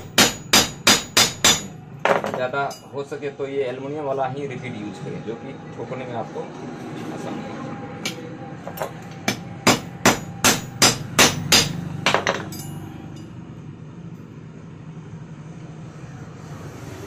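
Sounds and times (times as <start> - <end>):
hammer striking metal: 0.0 - 2.9, 8.0 - 13.3.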